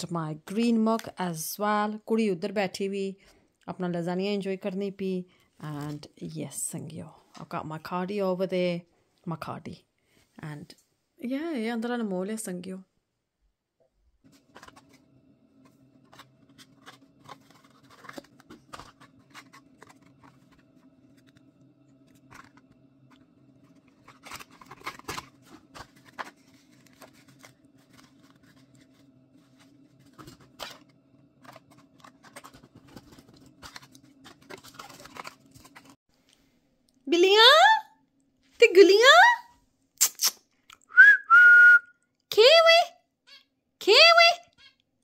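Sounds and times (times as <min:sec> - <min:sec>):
cardboard and packaging crinkling: 0:14.2 - 0:36.0
steady low hum: 0:14.2 - 0:37.0.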